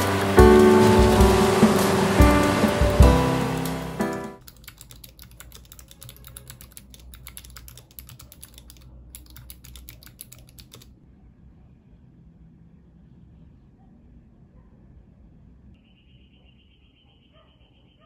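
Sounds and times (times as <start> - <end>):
music: 0.0 - 4.4
fast keyboard typing: 0.0 - 10.9.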